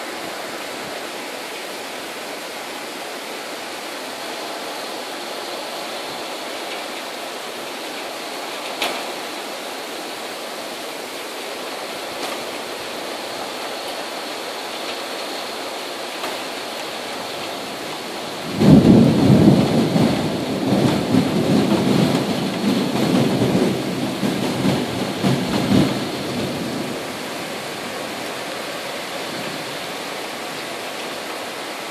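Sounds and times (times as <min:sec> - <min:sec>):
heavy rain hissing: 0:00.0 - 0:31.9
thunder clap rumbling: 0:18.4 - 0:28.6.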